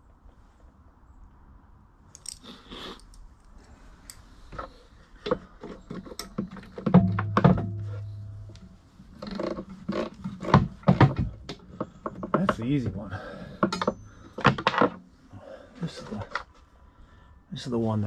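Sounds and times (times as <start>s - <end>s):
wrench and metal fittings clinking: 2.1s - 3.2s
loud metallic clank: 6.8s - 8.8s.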